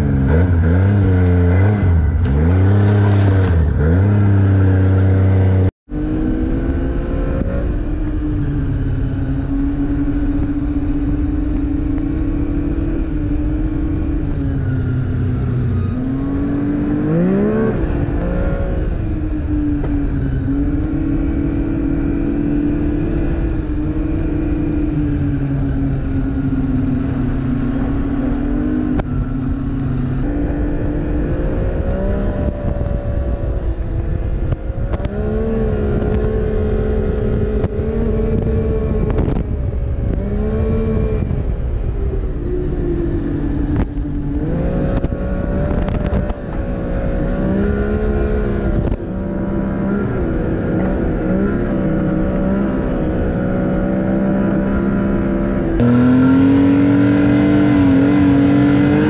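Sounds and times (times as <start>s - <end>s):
snowmobile engine revving: 0.0s - 8.0s, 12.2s - 19.1s, 44.4s - 59.0s.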